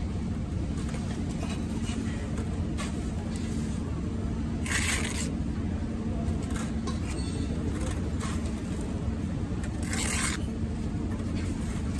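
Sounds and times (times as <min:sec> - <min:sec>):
low machine hum: 0:00.0 - 0:11.9
trowel scraping mortar on brick: 0:04.6 - 0:05.4, 0:09.6 - 0:10.5.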